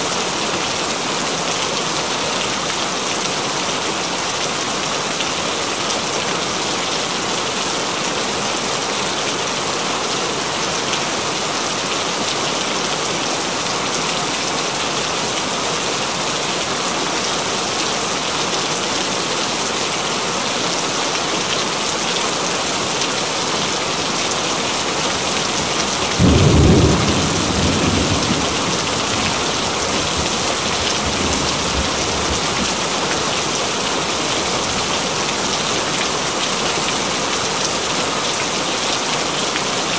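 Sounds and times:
heavy rain hiss: 21.9s - 38.2s.

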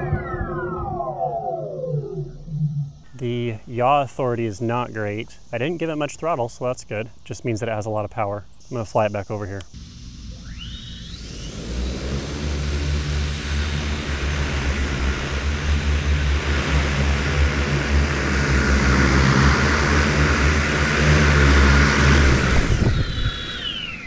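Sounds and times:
motor whine falling in pitch: 0.0s - 5.2s, 9.6s - 24.0s
drone motors humming: 0.0s - 24.0s
rushing air: 11.1s - 24.0s.

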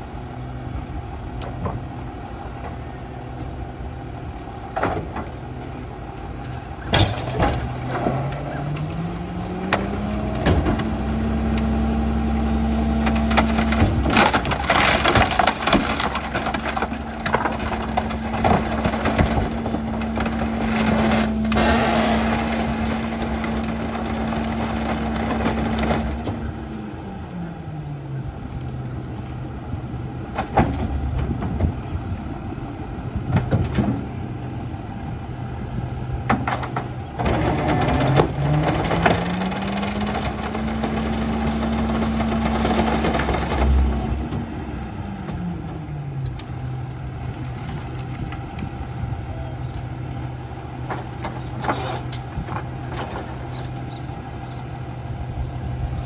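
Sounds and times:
garbage truck diesel engine revving: 0.0s - 56.0s
wood knocking and cracking: 13.0s - 21.2s.

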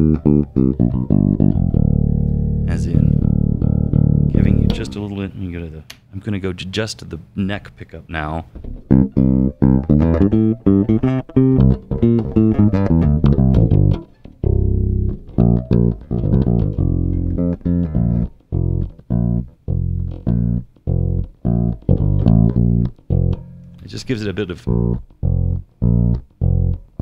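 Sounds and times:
electric bass played fingerstyle: 0.0s - 5.2s, 8.5s - 27.0s.

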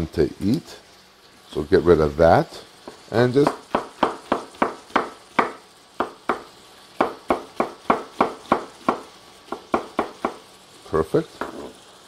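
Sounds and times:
knife chopping on wooden board: 2.9s - 10.4s.

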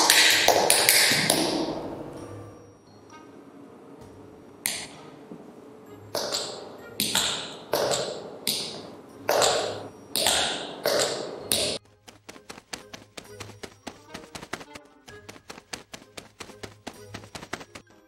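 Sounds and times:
heeled footsteps on tile floor: 6.2s - 17.8s.

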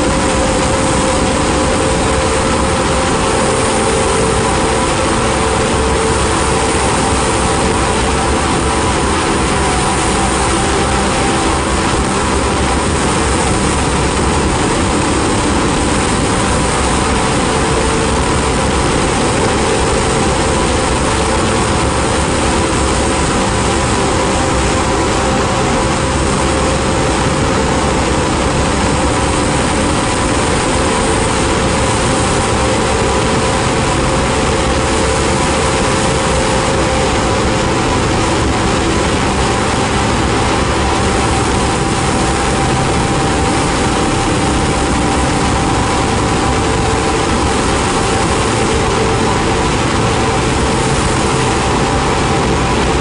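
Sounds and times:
ambient noise drone music: 0.0s - 53.0s.

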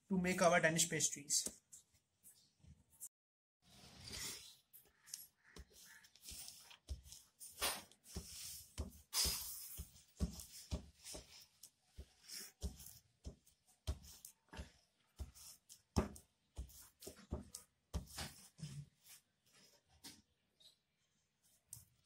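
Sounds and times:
rolling pin knocking on dough: 6.9s - 18.4s.

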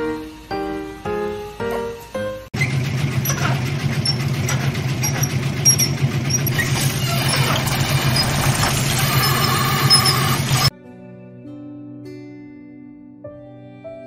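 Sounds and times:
faint high squeaks: 2.6s - 10.7s
washing machine running: 2.6s - 10.7s.

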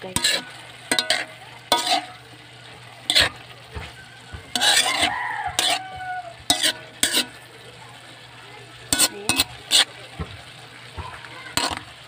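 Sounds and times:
metal spoon scraping a pan: 0.0s - 7.5s, 8.8s - 10.0s, 11.5s - 12.0s.

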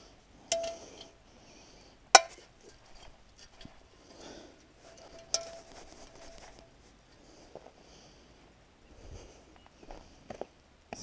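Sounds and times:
metal parts clanking: 0.5s - 1.1s.

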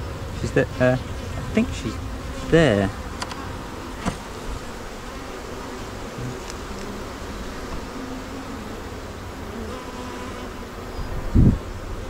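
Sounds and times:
honey bees buzzing: 0.0s - 12.0s.

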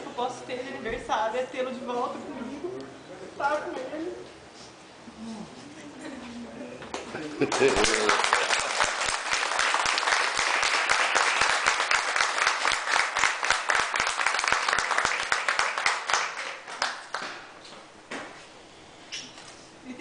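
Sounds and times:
people applauding: 6.9s - 17.4s.

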